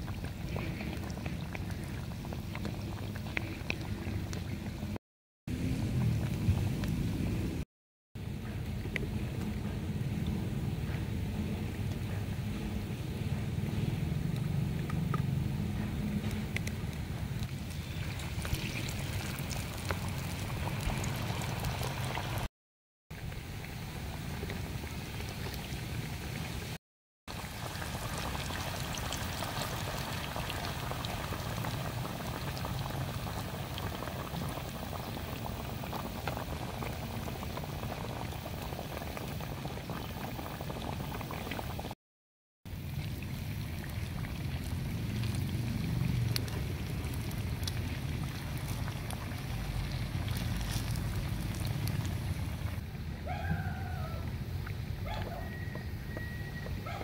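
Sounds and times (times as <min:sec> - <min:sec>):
oil sizzling while deep-frying: 0:11.4 - 0:22.5, 0:23.2 - 0:42.0, 0:42.7 - 0:52.8.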